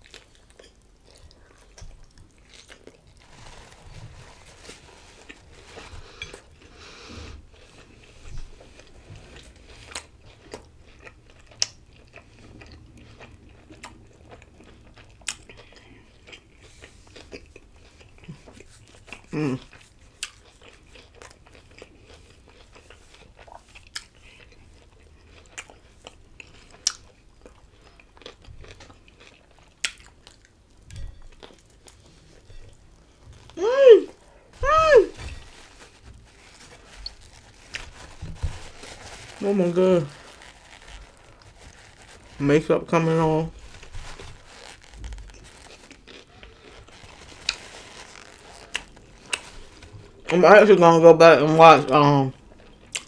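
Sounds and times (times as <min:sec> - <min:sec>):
chewing with wet mouth clicks: 0:00.0 - 0:03.1, 0:09.9 - 0:33.5, 0:52.3 - 0:53.0
biting into a wrap: 0:00.0 - 0:50.4.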